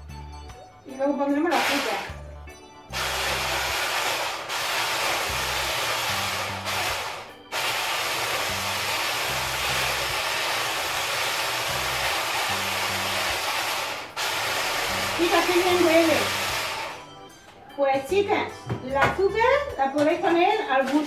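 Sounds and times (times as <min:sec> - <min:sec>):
immersion blender running: 0:01.5 - 0:02.2, 0:02.9 - 0:17.1.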